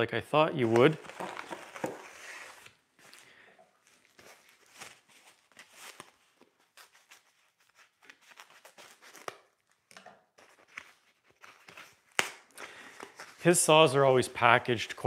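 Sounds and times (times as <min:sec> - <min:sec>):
foam sheet rustling and crinkling: 0:00.6 - 0:03.1, 0:03.9 - 0:09.2.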